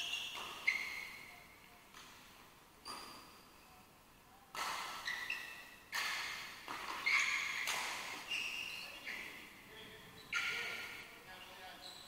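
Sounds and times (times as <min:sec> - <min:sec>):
court shoes squeaking: 0:00.0 - 0:03.8, 0:04.5 - 0:12.0
rackets striking shuttlecock: 0:04.5 - 0:08.3.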